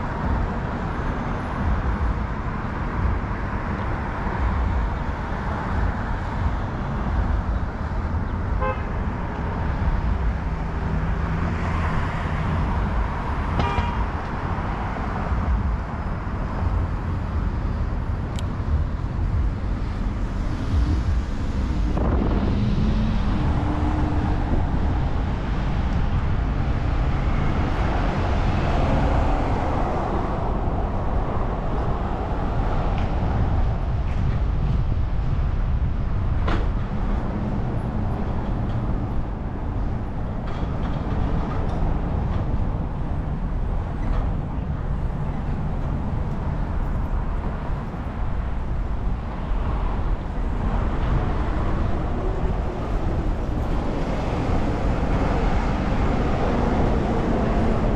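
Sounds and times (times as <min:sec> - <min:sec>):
street traffic: 0:00.0 - 0:57.9
wind rumble on microphone: 0:00.0 - 0:57.9
vehicle horn tooting: 0:08.6 - 0:09.0, 0:13.6 - 0:14.0.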